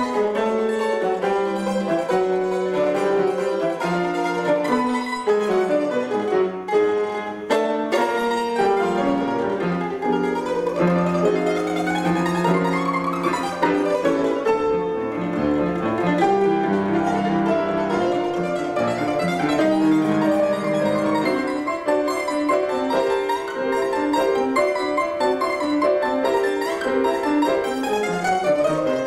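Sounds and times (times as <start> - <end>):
grand piano accompaniment: 0.0 - 29.0
mandolin plucked notes: 0.0 - 29.0.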